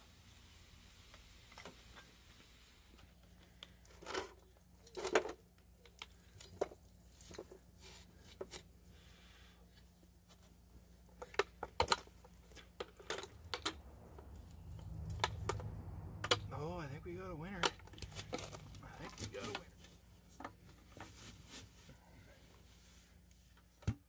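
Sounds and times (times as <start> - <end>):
pail and handle clinking: 11.2 - 14.1.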